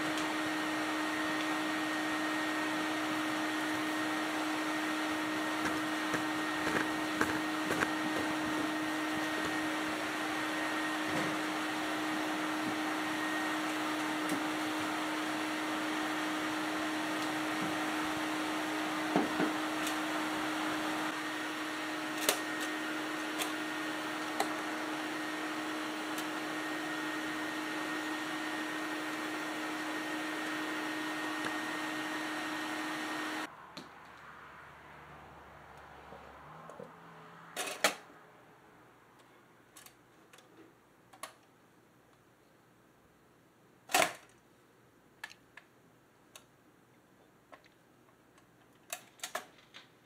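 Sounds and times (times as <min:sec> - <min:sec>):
vacuum cleaner humming: 0:00.0 - 0:33.5.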